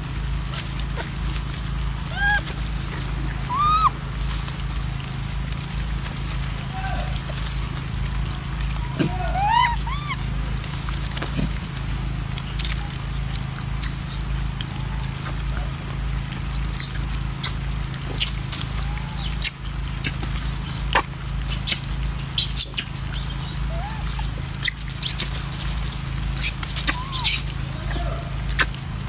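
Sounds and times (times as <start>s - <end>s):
monkeys chewing and handling food: 0.0s - 29.0s
squeaky monkey calls: 1.4s - 4.0s, 8.8s - 10.3s, 16.7s - 25.4s, 26.4s - 28.8s.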